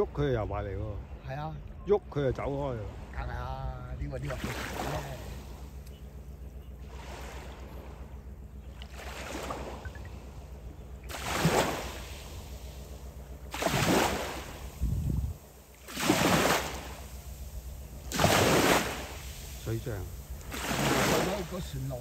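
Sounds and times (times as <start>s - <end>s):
steady low hum: 0.0s - 22.0s
waves washing onto beach: 2.4s - 5.9s, 6.8s - 8.1s, 8.8s - 22.0s.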